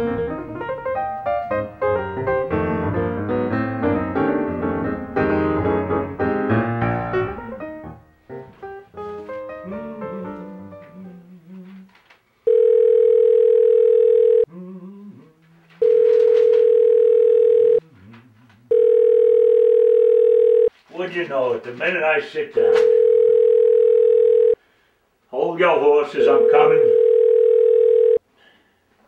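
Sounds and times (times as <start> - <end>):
piano music: 0.0 - 11.6
electronic telephone ringing: 12.5 - 14.5, 15.8 - 17.8, 18.7 - 20.7, 22.8 - 24.6, 26.2 - 28.2.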